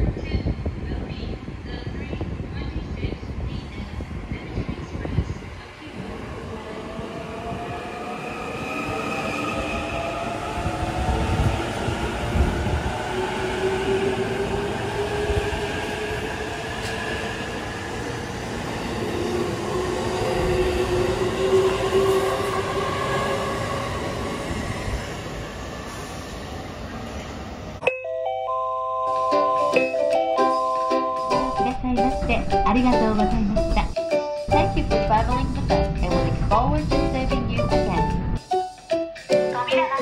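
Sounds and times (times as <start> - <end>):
light background music: 29.1 - 40.0
train wheels rumbling: 31.5 - 38.4.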